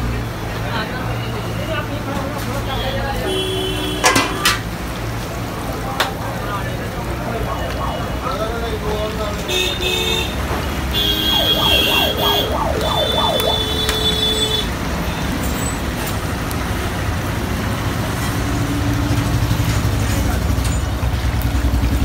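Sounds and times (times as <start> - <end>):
street traffic: 0.0 - 22.0
warbling electronic horn: 7.4 - 8.4, 10.9 - 14.7.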